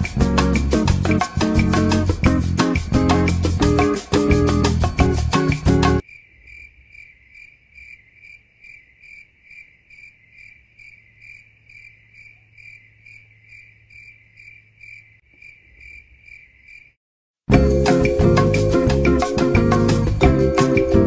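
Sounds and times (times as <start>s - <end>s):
crickets chirping: 6.0s - 17.0s.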